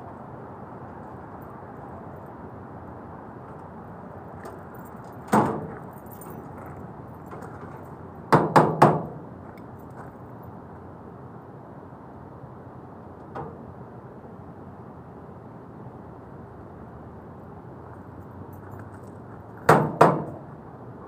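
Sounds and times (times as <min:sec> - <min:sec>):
steady background noise: 0:00.0 - 0:21.0
knocks on sheet metal casing: 0:08.3 - 0:09.2, 0:19.7 - 0:20.4.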